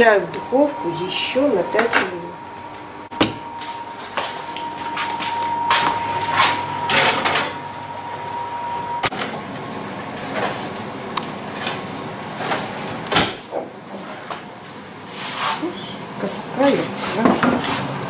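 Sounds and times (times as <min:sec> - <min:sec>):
metal baking tray scraping and clattering: 0:16.6 - 0:17.9.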